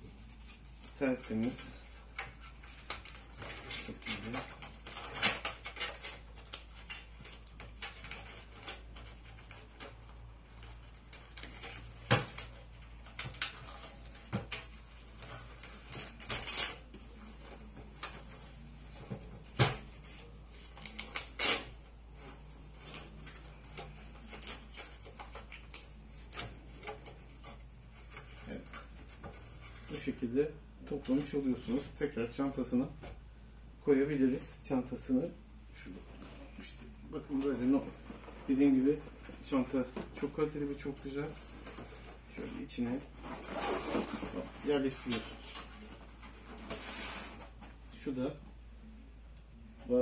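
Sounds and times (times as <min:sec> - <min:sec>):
rustling: 0:35.8 - 0:47.9.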